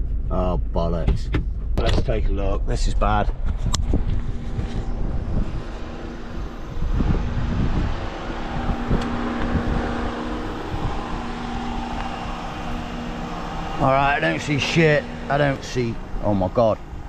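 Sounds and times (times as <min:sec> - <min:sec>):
car engine humming: 0:00.0 - 0:17.0
wind buffeting microphone: 0:01.6 - 0:17.0
rushing air: 0:03.4 - 0:17.0.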